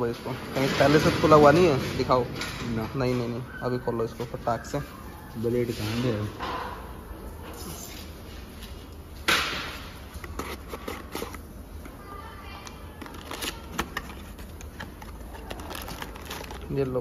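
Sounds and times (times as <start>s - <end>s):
cardboard scraping and clicks: 10.2s - 11.4s, 13.0s - 16.6s.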